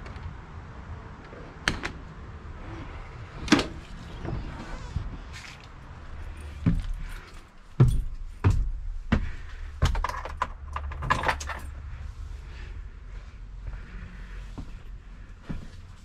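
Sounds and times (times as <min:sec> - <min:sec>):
sharp knocks and clicks: 0:09.8 - 0:11.5.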